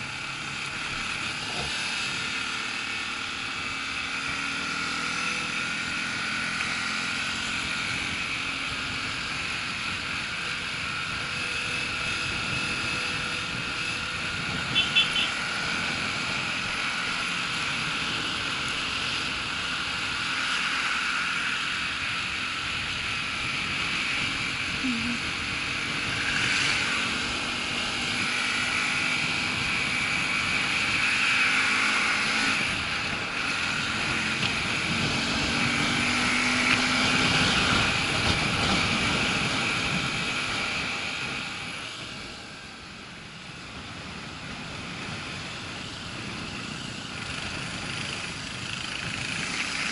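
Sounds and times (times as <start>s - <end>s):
motorcycle engine: 0.0s - 49.9s
wind noise: 7.7s - 18.5s, 32.3s - 42.6s.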